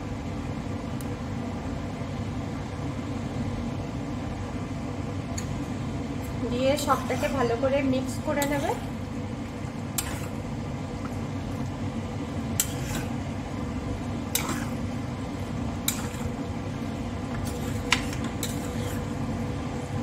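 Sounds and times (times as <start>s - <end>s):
steady low hum: 0.0s - 20.0s
metal spoon scraping steel pan: 6.8s - 7.5s, 8.4s - 8.8s, 10.0s - 10.4s, 12.6s - 13.2s, 14.3s - 14.8s, 15.8s - 16.3s, 17.4s - 19.1s.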